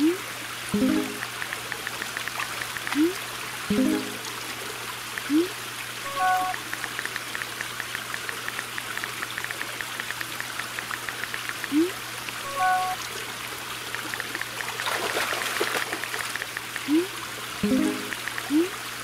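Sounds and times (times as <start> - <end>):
pond waterfall trickling: 0.0 - 19.0
multi-tone message chime: 0.8 - 1.2, 3.7 - 4.2, 6.1 - 6.6, 12.5 - 13.0.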